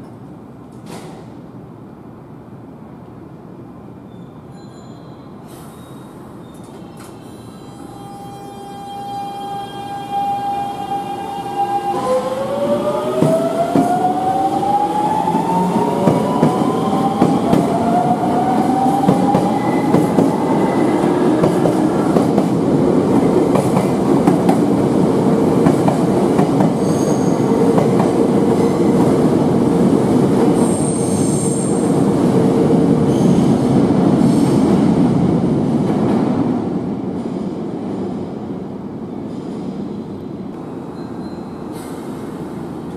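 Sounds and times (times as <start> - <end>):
train cars rumbling on rails: 9.2 - 42.9
wheel squeal: 40.9 - 42.0.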